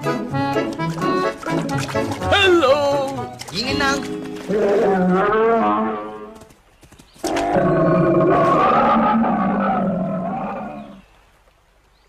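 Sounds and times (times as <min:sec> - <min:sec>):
cartoon bear roaring: 0:04.5 - 0:06.3, 0:07.3 - 0:11.0.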